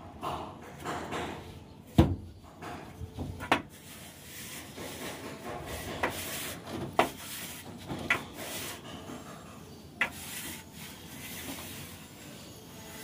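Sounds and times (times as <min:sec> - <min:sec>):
bar scraping wet plaster: 0:10.0 - 0:12.3.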